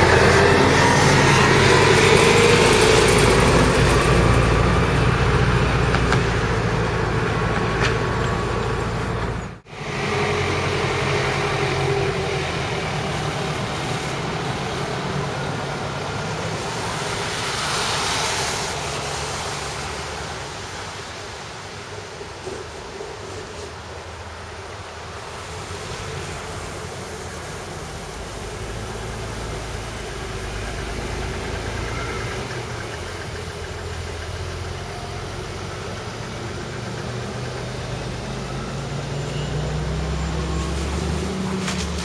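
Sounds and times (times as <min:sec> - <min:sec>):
vehicle passing: 0:00.0 - 0:21.0
bus engine accelerating: 0:00.0 - 0:42.0
tyres hissing on wet road: 0:00.0 - 0:42.0.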